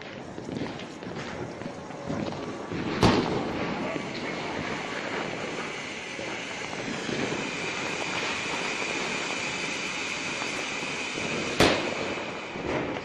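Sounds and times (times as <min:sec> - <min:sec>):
firework fountain hissing: 0:00.0 - 0:13.0
high-pitched hiss: 0:03.4 - 0:13.0
sharp bang: 0:11.5 - 0:13.0.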